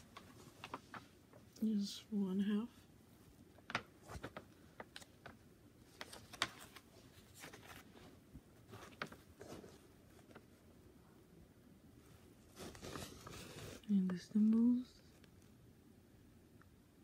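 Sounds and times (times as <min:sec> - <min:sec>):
canvas crinkling and rustling: 0:00.0 - 0:01.5, 0:03.6 - 0:10.6.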